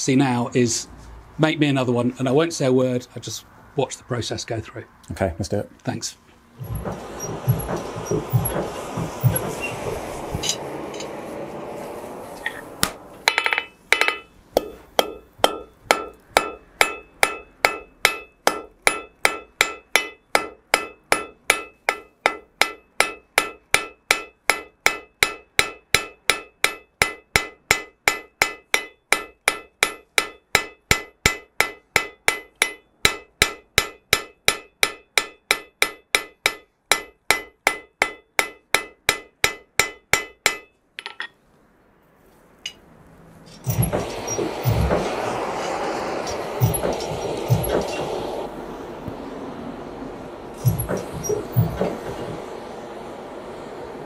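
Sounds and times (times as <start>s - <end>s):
forge bellows blowing air: 6.4s - 16.9s, 43.3s - 54.0s
hammer striking iron on anvil: 6.6s - 11.7s, 12.8s - 41.3s, 43.7s - 48.4s, 50.6s - 52.5s.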